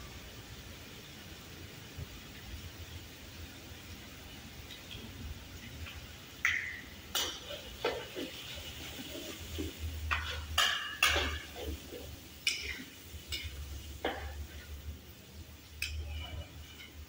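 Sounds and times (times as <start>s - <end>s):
metal spatula scraping a wok: 7.4s - 14.8s, 15.6s - 17.0s.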